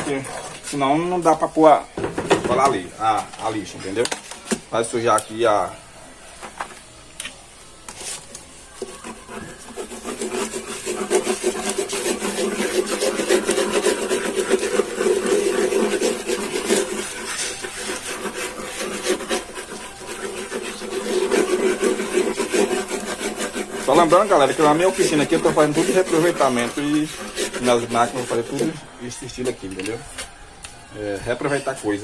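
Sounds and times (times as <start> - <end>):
glue nozzle rubbing on paper: 8.0 - 28.8.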